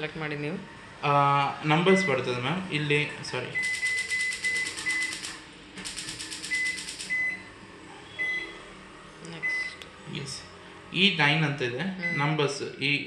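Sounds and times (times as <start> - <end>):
oven control panel beeps: 3.6 - 5.2, 6.5 - 7.5, 8.2 - 8.5
rapid even ticking: 3.6 - 7.2.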